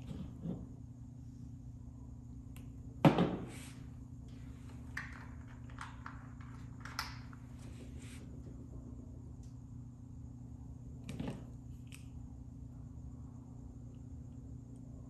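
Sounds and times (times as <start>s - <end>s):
steady low hum: 0.0s - 15.0s
loud knock on workbench: 3.0s - 3.5s.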